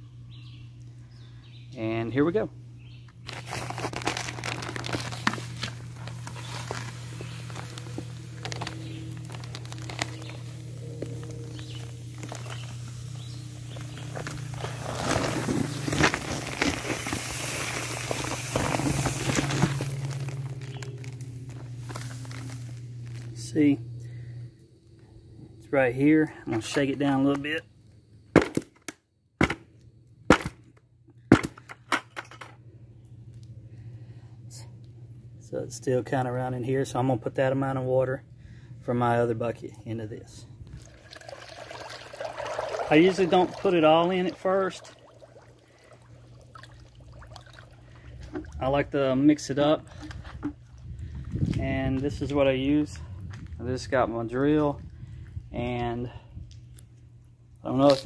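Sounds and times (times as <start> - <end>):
steady low hum: 0.0 - 58.0
bag rustling: 3.3 - 23.3
sugar pouring into water: 40.9 - 44.1.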